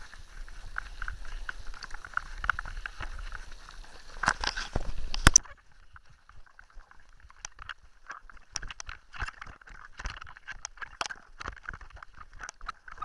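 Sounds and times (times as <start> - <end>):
mountain bike rattling over stones: 0.0 - 5.4.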